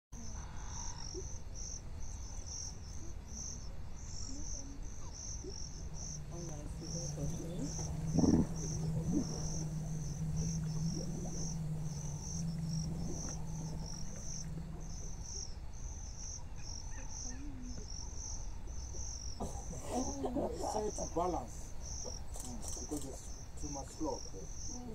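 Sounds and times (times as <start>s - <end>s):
insects chirping: 0.2s - 24.9s
low steady hum: 1.9s - 24.9s
low rumble: 5.6s - 16.2s.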